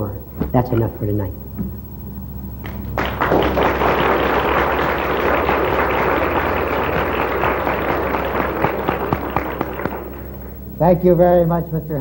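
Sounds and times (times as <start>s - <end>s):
audience applauding: 2.6s - 10.7s.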